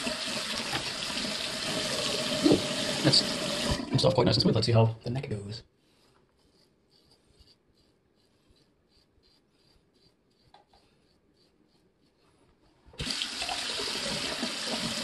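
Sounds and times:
water running into sink: 0.0s - 4.2s, 13.0s - 15.0s.

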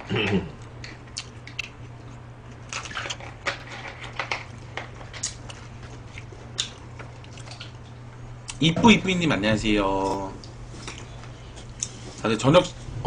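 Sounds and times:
steady low hum: 0.0s - 13.0s
chewing: 0.2s - 8.6s, 10.4s - 12.0s.

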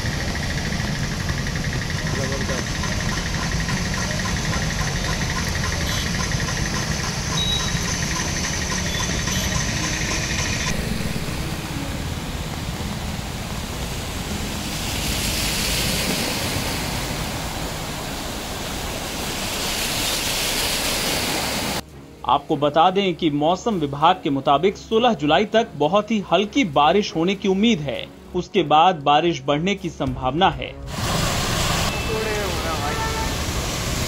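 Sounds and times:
car engines running: 0.0s - 21.8s
rushing splash of spray: 10.6s - 21.8s, 30.9s - 34.0s
tyres churning through water: 12.2s - 21.8s.

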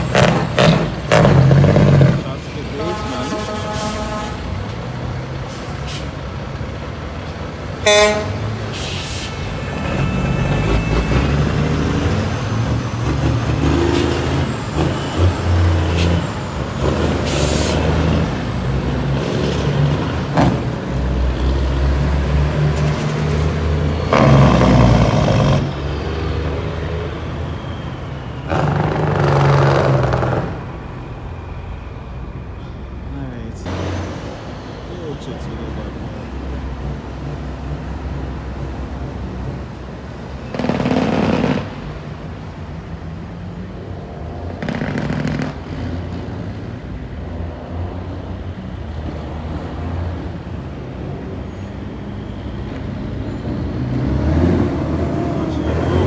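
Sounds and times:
truck diesel engines pulling: 0.0s - 56.0s
truck horn toot: 2.7s - 4.6s, 7.8s - 8.6s.

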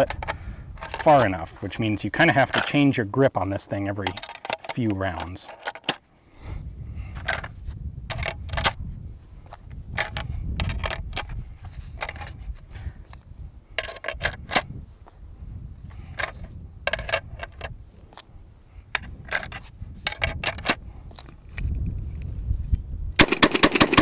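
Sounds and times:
metallic clicks of magazine loading: 4.0s - 6.0s, 19.0s - 22.3s.

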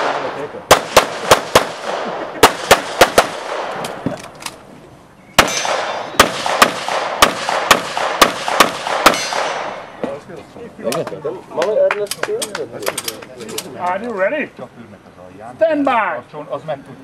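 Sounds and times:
pistol shots with echo: 0.0s - 4.0s, 5.4s - 9.9s.

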